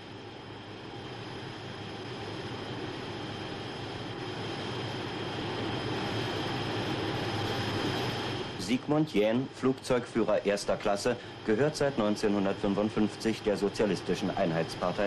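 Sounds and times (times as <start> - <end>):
jet engine roar with whine: 0.0 - 15.0.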